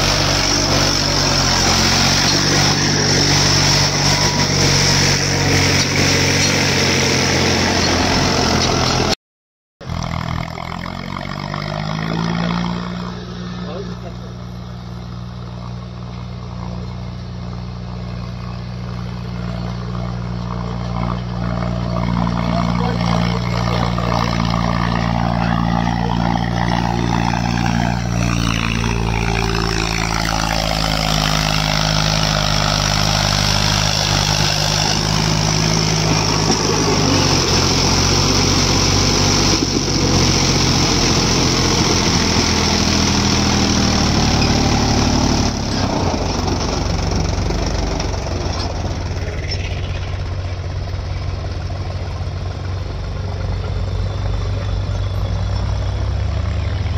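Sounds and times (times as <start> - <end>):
machine whine falling in pitch: 0.0 - 8.4, 16.4 - 45.7
diesel engines of heavy machinery: 0.0 - 9.2, 9.8 - 56.9.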